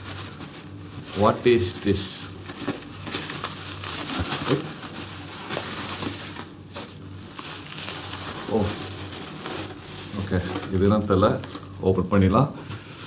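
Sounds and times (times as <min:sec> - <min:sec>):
paper and plastic rustling: 0:00.0 - 0:13.0.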